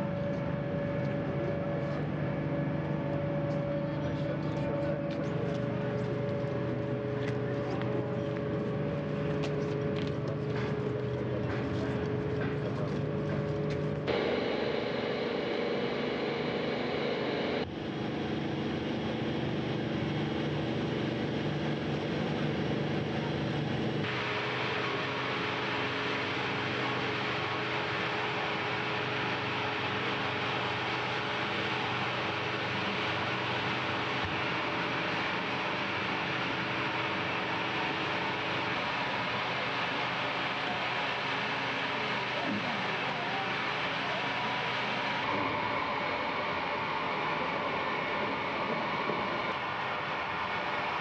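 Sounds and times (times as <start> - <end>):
machinery hum: 0.0 - 51.0
held tones: 14.1 - 17.7.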